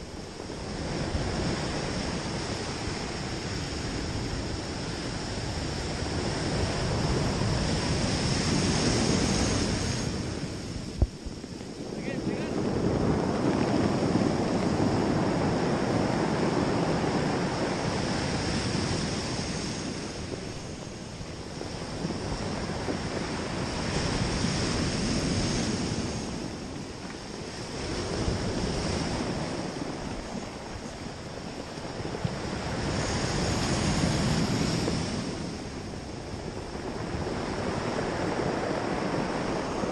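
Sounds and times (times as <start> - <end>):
surf breaking on cobble beach: 0.0 - 39.9
wind on microphone: 0.0 - 39.9.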